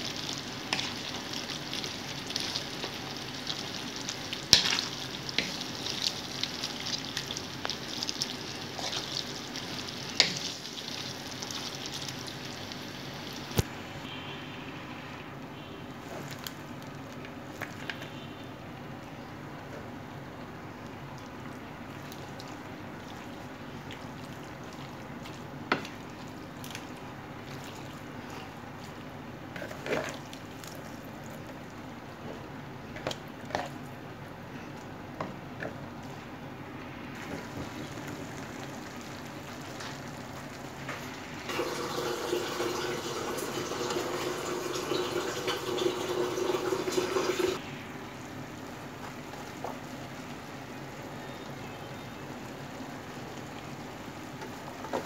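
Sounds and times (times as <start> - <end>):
spatulas stirring pasta in pan: 0.0 - 12.8, 21.2 - 34.1, 53.9 - 55.0
low sizzle: 0.0 - 55.0.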